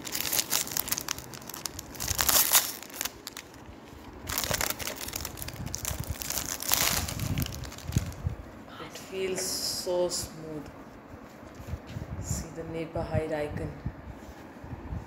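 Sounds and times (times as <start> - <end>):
plastic wrapper crinkling: 0.0 - 8.3.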